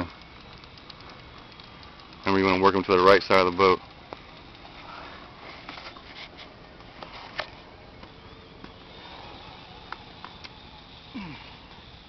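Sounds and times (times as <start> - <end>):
fishing reel clicks and taps: 0.0 - 4.7, 9.8 - 11.1.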